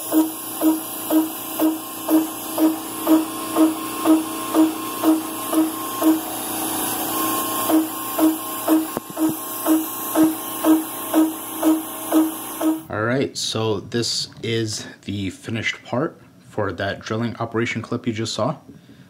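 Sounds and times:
router spindle pulsing cutting note: 0.0s - 12.9s.

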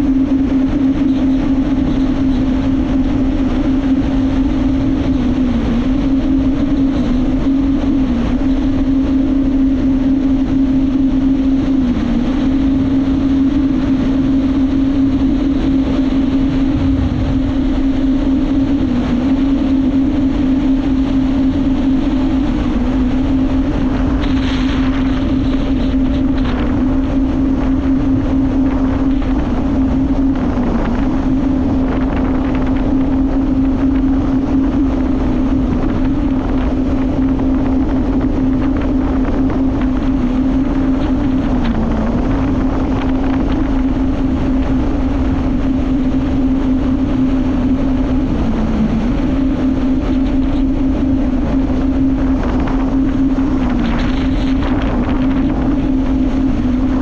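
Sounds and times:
jet ski engine droning: 0.0s - 57.0s
water rushing past hull: 0.0s - 57.0s
wind buffeting microphone: 0.0s - 57.0s.

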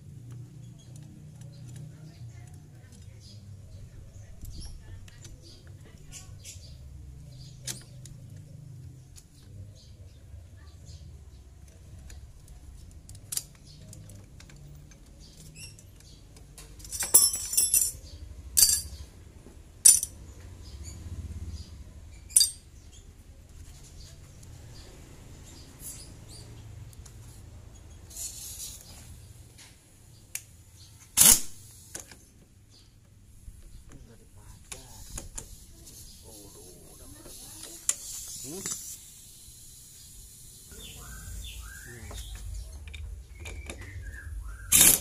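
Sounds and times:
metal tools clinking: 16.7s - 19.0s, 19.8s - 20.2s, 22.3s - 22.7s.

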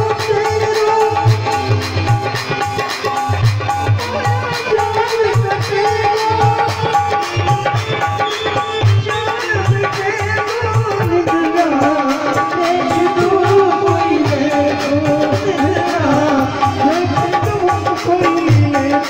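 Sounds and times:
hand drums beating: 0.0s - 19.0s.

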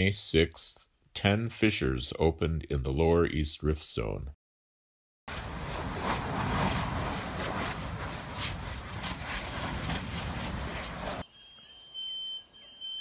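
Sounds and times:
lava erupting with crackles: 5.3s - 11.2s.

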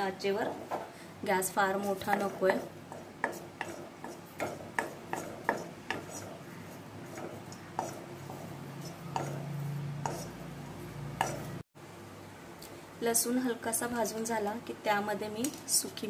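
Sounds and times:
garlic and spatula tapping a pan: 1.7s - 11.6s.

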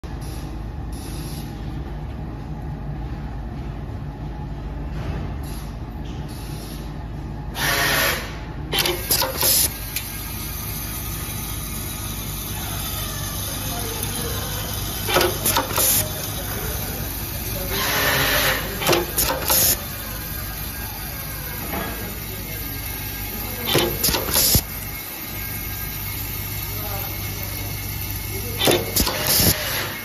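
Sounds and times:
machine feeders humming: 0.1s - 30.0s
pneumatic press clicks: 7.6s - 10.2s, 15.0s - 16.1s, 17.8s - 19.8s, 23.7s - 24.7s, 28.6s - 29.9s.

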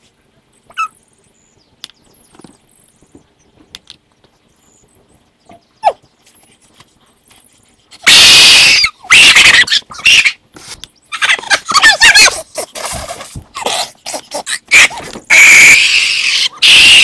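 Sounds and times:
young man screaming: 14.7s - 17.0s.

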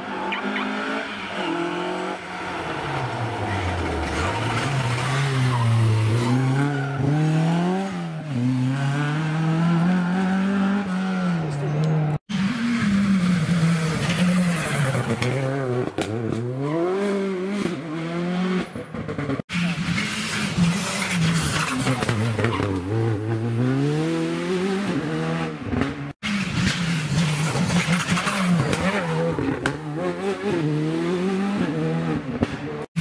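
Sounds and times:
second car engine at high revs: 0.0s - 33.0s
rally car engine revving: 0.2s - 33.0s.

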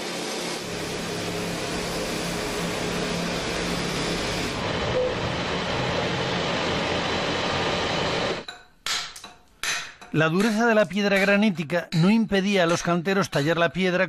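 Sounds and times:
heavy machinery rumble and hiss: 0.0s - 8.4s.

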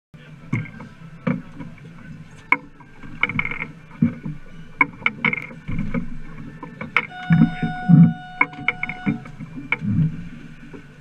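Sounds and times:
steady low hum: 0.2s - 11.0s
gear knocking on boat deck: 3.1s - 10.9s.

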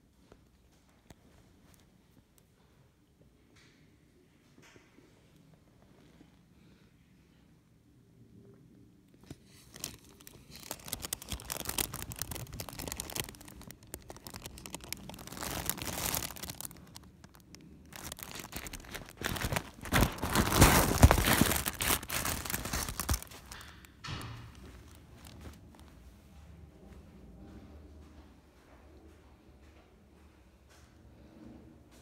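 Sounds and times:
fabric tunnel rustling: 9.6s - 23.7s, 24.5s - 26.0s.

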